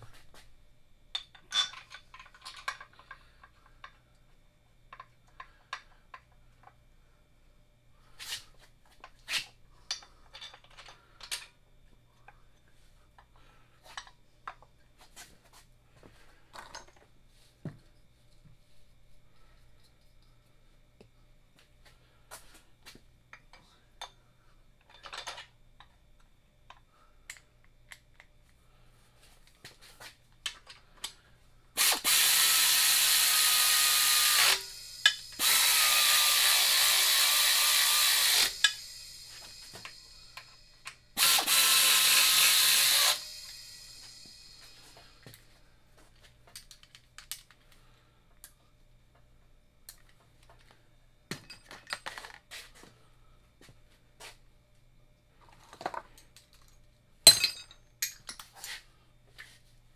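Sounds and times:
metal parts clicking: 0:01.2 - 0:03.6
power tool driving bolts: 0:31.8 - 0:44.8.

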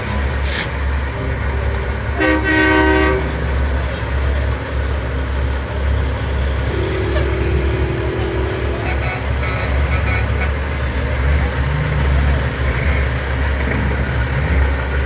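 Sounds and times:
truck engines rumbling: 0:00.0 - 0:15.0
truck horn chord: 0:02.2 - 0:03.4, 0:06.5 - 0:10.6.

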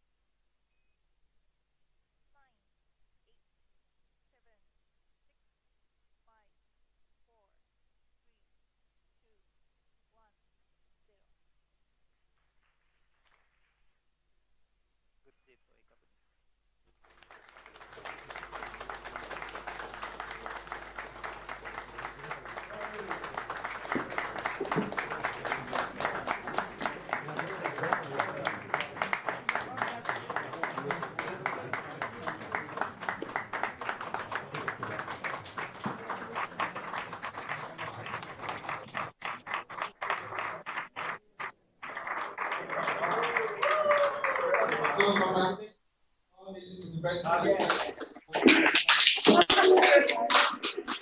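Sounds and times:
audience applauding: 0:16.9 - 0:41.2, 0:41.8 - 0:45.2.

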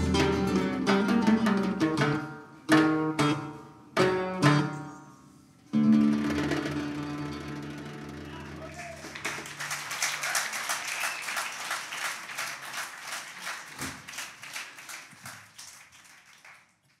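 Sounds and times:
plucked string note ringing: 0:00.0 - 0:05.0, 0:05.7 - 0:08.6
audience applauding: 0:08.3 - 0:17.0.

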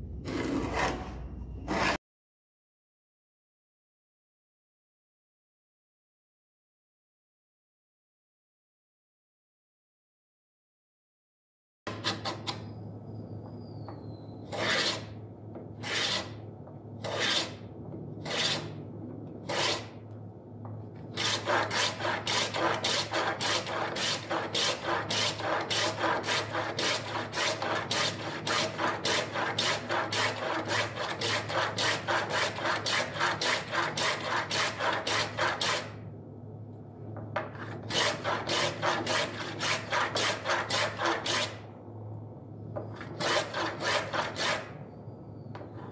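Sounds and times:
steady low hum: 0:12.5 - 0:45.9
hand plane shaving wood: 0:14.5 - 0:15.1, 0:15.8 - 0:16.3, 0:17.0 - 0:17.6, 0:18.2 - 0:18.6, 0:19.5 - 0:19.9, 0:21.2 - 0:35.9, 0:37.9 - 0:41.5, 0:43.2 - 0:44.6.

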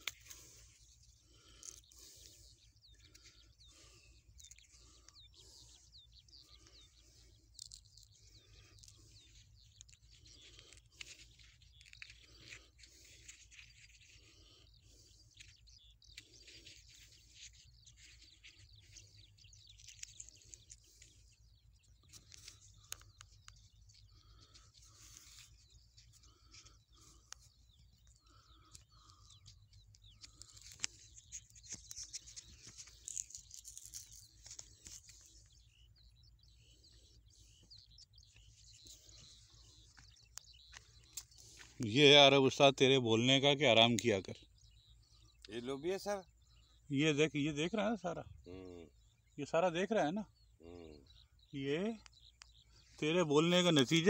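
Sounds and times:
small birds chirping: 0:00.0 - 0:54.0
light clicks and rustles: 0:15.2 - 0:35.7.

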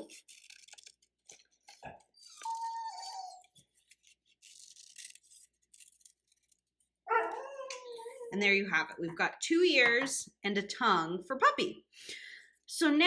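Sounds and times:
scissors snipping paper: 0:00.0 - 0:08.2
puppy whining: 0:02.2 - 0:03.7, 0:07.1 - 0:08.3.

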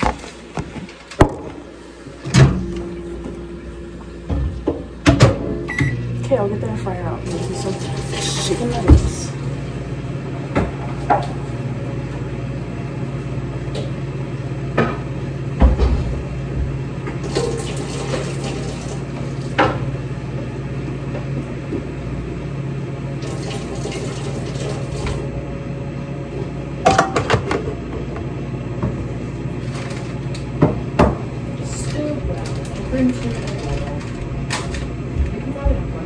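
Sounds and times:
low appliance hum: 0:00.0 - 0:36.0
tap running: 0:07.2 - 0:09.3, 0:29.6 - 0:36.0.

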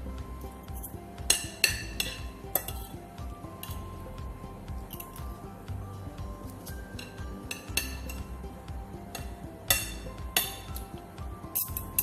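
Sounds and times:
soft background music: 0:00.0 - 0:12.0
cutlery clinking on a plate: 0:00.8 - 0:03.0, 0:11.5 - 0:12.0.

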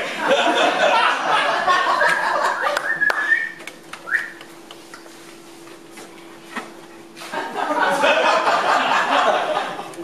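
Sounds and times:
faint steady hum: 0:00.0 - 0:10.0
person whistling: 0:02.6 - 0:04.5
audience murmur and chuckling: 0:07.0 - 0:10.0.

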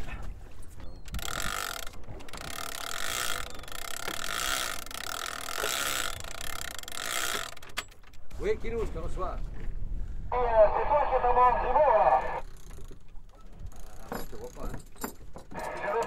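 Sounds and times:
fishing reel drag buzzing: 0:01.1 - 0:07.8, 0:12.4 - 0:13.0.

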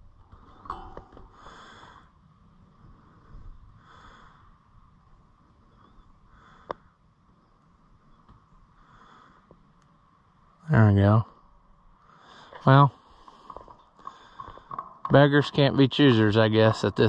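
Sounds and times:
slow breathing through nose: 0:01.2 - 0:05.0, 0:05.6 - 0:07.1, 0:08.7 - 0:09.8, 0:12.0 - 0:14.8.

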